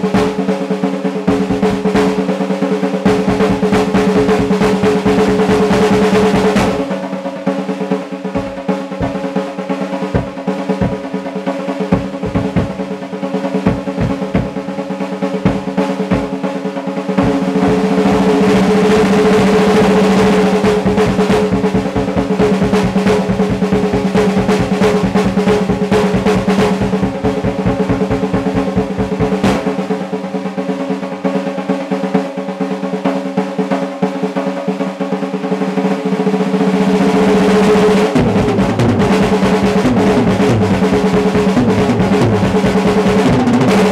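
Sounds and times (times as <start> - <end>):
drum kit played with sticks: 0.0 - 43.9
snare drum roll: 0.0 - 43.9
bass drum beating: 1.3 - 2.2, 3.1 - 7.0, 8.3 - 16.5, 17.2 - 29.8, 37.2 - 43.9.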